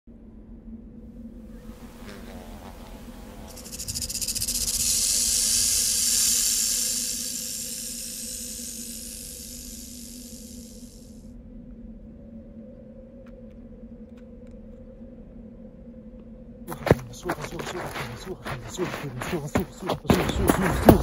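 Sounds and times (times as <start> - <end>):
high dry rattling hiss: 1.8 - 11.2.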